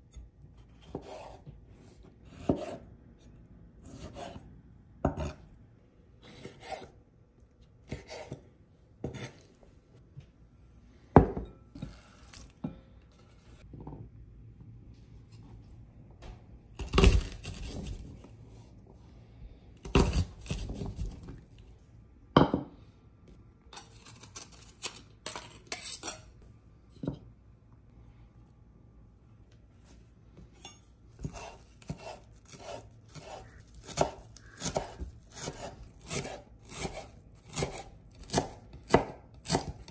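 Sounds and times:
knife chopping on cutting board: 2.3s - 2.8s, 5.0s - 5.4s, 7.9s - 8.4s, 9.0s - 9.4s, 31.2s - 39.9s.

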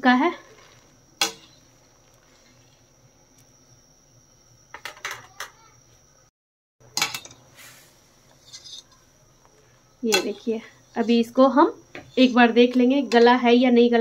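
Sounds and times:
faint steady hiss: 0.0s - 14.0s
wire skimmer clinking against metal pot: 10.1s - 11.2s.

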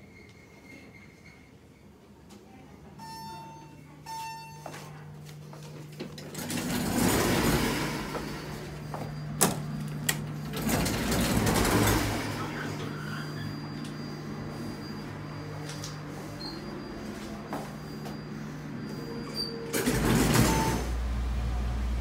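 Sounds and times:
elevator arrival chime: 3.0s - 22.0s
elevator doors sliding: 5.7s - 22.0s
steady low hum: 7.9s - 19.5s.

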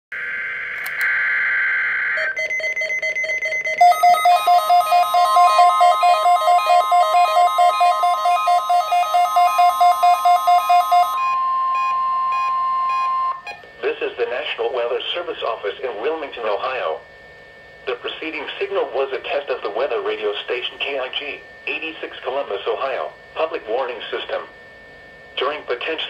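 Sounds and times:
steady high tone: 0.1s - 17.3s
pulsing alert beeps: 2.2s - 13.4s.

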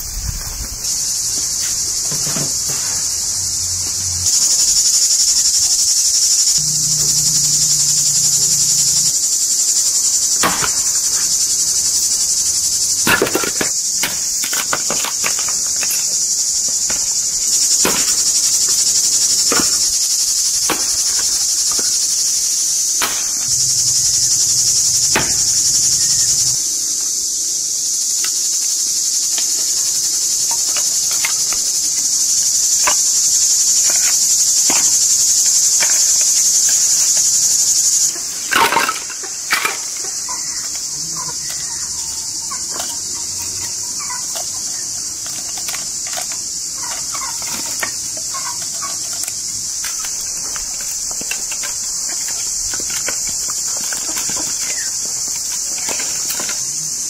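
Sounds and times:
crickets chirping: 0.0s - 57.0s
hatchet splitting firewood: 10.4s - 11.3s.

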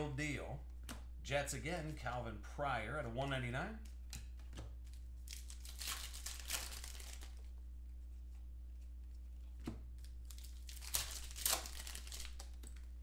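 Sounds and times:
steady low hum: 0.0s - 13.0s
plastic wrapper tearing and crinkling: 4.9s - 7.5s, 10.0s - 13.0s.

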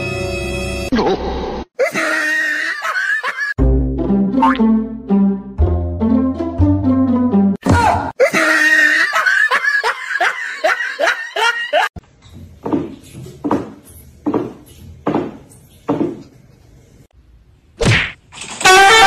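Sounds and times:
person laughing: 1.8s - 3.6s, 8.2s - 11.9s.

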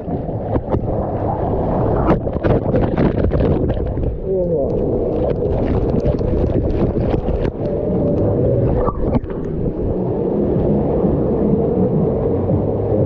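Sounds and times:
low rumble of water: 0.0s - 13.0s.

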